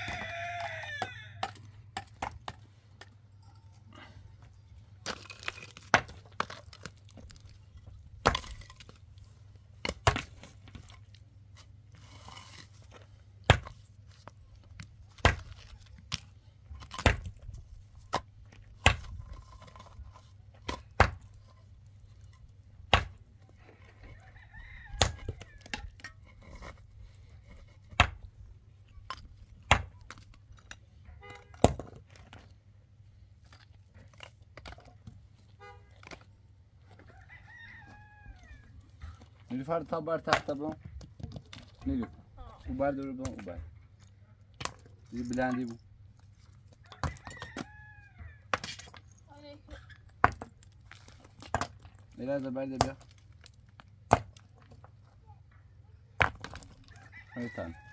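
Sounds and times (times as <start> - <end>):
rooster crowing: 0.0 - 1.6, 24.0 - 25.8, 37.0 - 38.8, 46.8 - 48.5, 56.9 - 57.9.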